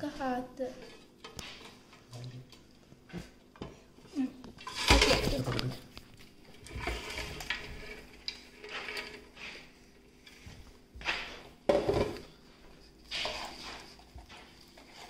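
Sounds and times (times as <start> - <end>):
spatula scraping against pan: 6.6 - 10.4.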